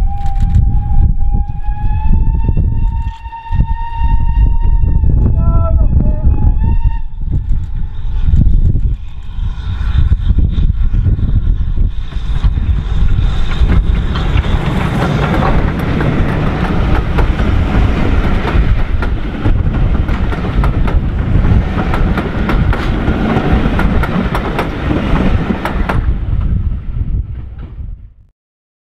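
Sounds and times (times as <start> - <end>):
steam train passing rumble: 0.0 - 28.2
wheels clicking over rail joints: 13.5 - 26.6.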